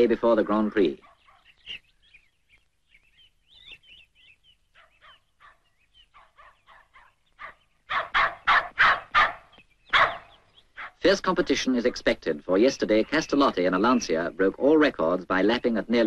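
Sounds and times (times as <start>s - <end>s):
faint bird chirping: 0.0s - 16.0s
dog barking rapidly: 1.0s - 1.4s, 4.8s - 11.0s.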